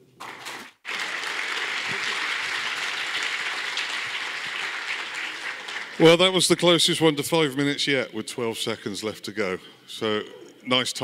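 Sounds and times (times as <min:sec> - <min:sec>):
audience applauding: 0:00.2 - 0:06.5.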